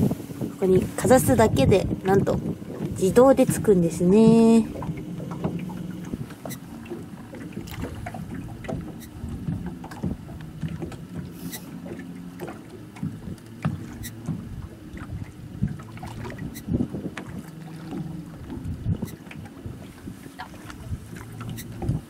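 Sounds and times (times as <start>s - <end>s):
boat machinery humming: 0.0s - 22.0s
knocks and clicks of gear: 4.8s - 14.6s.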